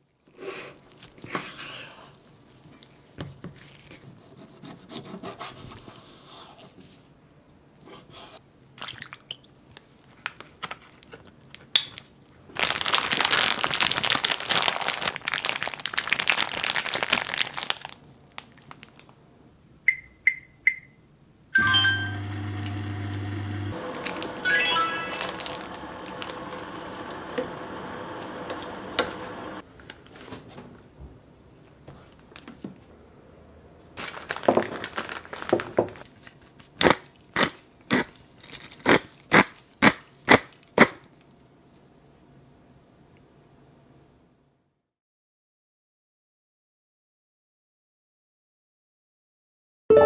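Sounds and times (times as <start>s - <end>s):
plastic bag crinkling: 12.5s - 19.2s, 23.9s - 27.3s, 34.0s - 36.3s, 38.3s - 39.4s
cooker humming: 21.6s - 29.6s.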